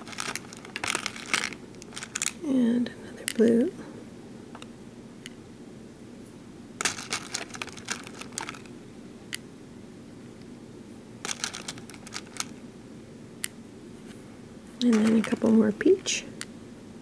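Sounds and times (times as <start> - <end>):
plastic beads clicking: 0.0 - 2.4.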